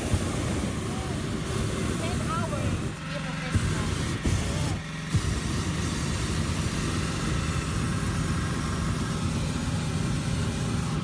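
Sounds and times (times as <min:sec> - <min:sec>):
propane burner roaring: 0:00.0 - 0:11.0
small engine running: 0:00.0 - 0:11.0.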